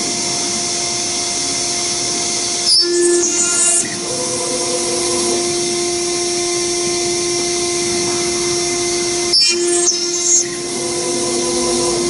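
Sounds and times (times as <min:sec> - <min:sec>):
router spindle whine: 0:00.0 - 0:12.0
drill bit cutting into metal: 0:02.6 - 0:12.0.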